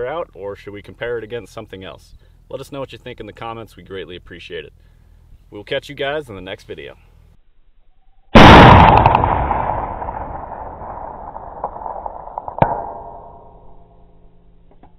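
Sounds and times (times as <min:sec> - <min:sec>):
loud gunshot-like blast: 0:08.4 - 0:13.0
sharp crack: 0:08.4 - 0:13.7.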